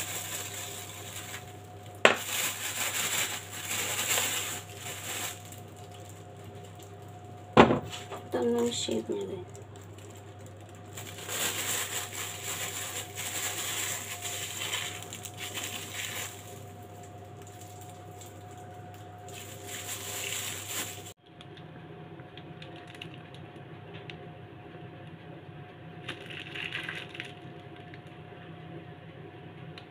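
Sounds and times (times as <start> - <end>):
plastic bag crinkling: 0.0 - 7.4, 8.4 - 21.2
faint steady hum: 0.0 - 29.9.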